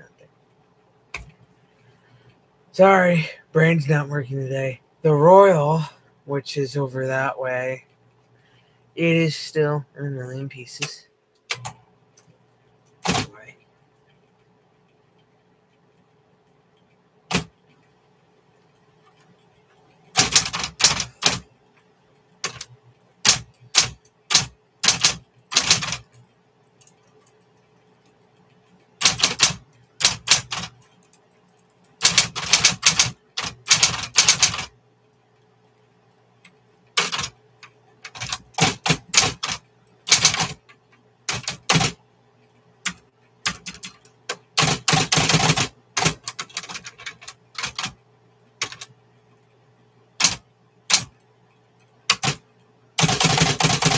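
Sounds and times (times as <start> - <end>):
typewriter motor hum: 20.1 - 21.4, 22.4 - 26.2, 29.0 - 30.7, 32.0 - 34.7, 38.1 - 40.6, 53.0 - 53.9
typewriter keystrokes: 20.2 - 21.4, 22.4 - 26.2, 29.0 - 30.7, 32.0 - 34.7, 37.0 - 37.3, 38.1 - 40.6, 41.3 - 42.0, 42.9 - 48.0, 48.6 - 48.9, 50.2 - 51.1, 52.1 - 52.4, 53.0 - 53.9.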